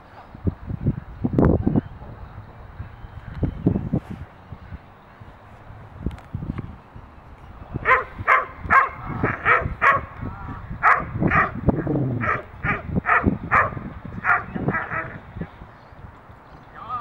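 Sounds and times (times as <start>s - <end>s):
large dog barking: 7.8s - 10.2s, 10.8s - 15.2s.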